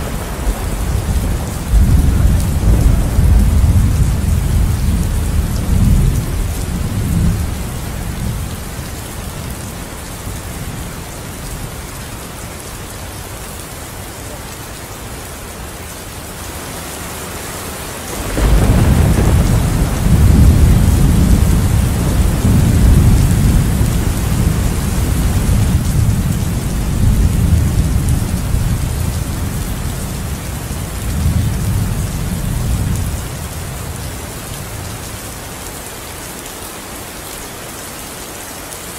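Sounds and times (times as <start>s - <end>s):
low thunder rumble: 0.0s - 9.7s, 18.1s - 35.0s
steady rain: 0.0s - 38.9s
loud thunderclap: 0.4s - 7.5s, 18.1s - 29.1s.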